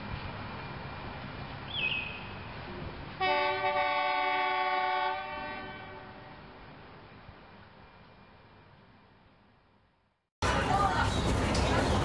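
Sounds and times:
railcar horn blast: 3.2s - 6.6s.

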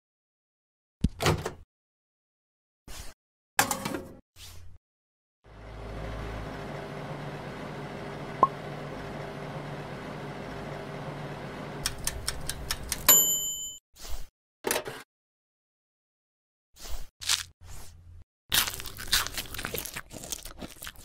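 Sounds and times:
toaster oven hum: 5.5s - 13.4s
timer bell ding: 13.1s - 13.8s.

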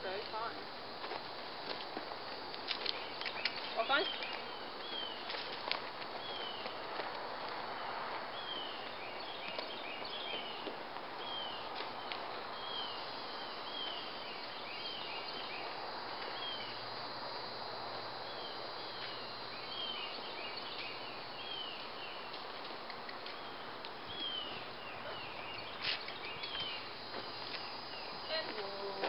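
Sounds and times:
outdoor background hiss: 0.0s - 29.0s
birds chirping: 2.5s - 6.9s, 7.6s - 17.6s, 18.3s - 29.0s.

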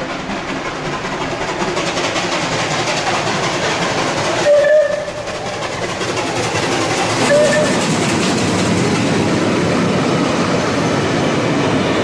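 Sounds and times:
rail noise: 0.0s - 12.0s
steam locomotive rumbling: 0.0s - 12.0s
steam whistle blast: 4.4s - 5.2s, 7.2s - 7.8s.

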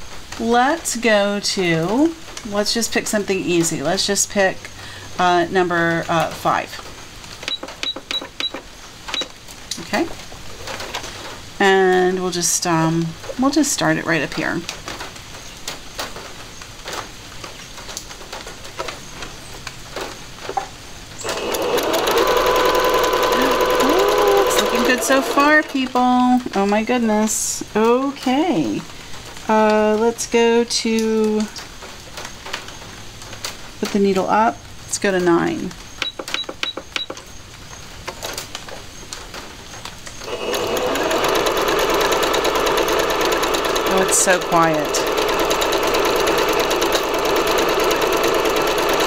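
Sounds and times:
sewing machine stitching whir: 21.2s - 26.0s, 40.2s - 49.0s.

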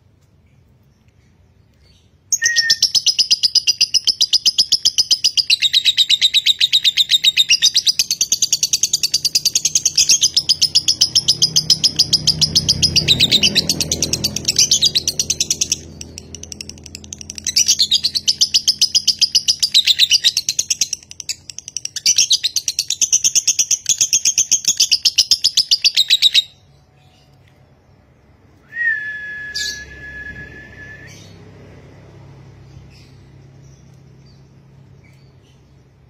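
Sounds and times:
lovebird chattering: 2.4s - 26.6s
steady whistle-like tone: 28.6s - 31.4s.

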